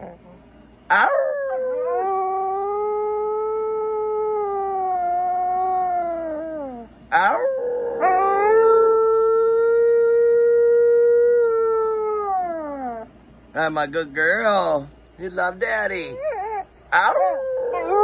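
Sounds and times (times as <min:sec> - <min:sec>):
dog howling: 0:00.9 - 0:13.1, 0:16.0 - 0:18.0.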